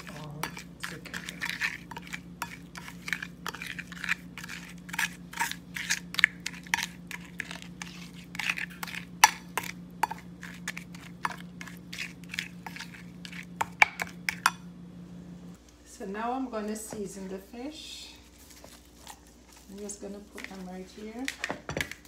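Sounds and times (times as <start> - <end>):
spoon scraping a plate: 0.0 - 14.6
steady low hum: 0.0 - 22.0.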